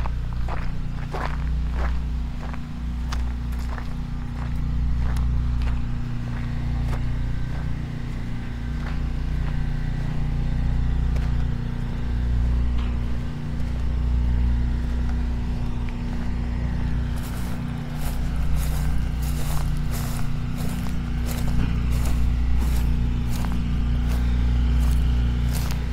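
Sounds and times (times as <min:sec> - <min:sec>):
footsteps on concrete: 0:00.0 - 0:07.8, 0:17.2 - 0:25.9
low hum and rumble: 0:00.0 - 0:25.9
scuffing hissing sounds: 0:17.2 - 0:25.9.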